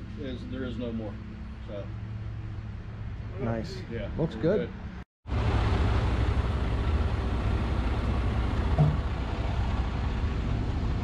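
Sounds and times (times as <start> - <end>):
diesel engine running: 5.3 - 11.0.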